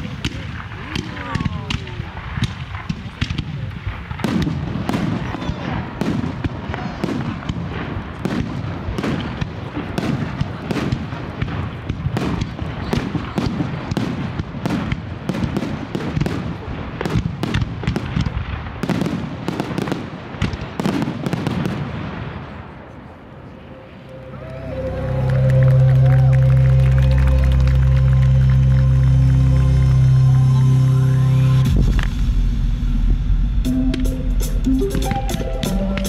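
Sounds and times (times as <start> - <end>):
continuous low rumble: 21.6 - 36.0.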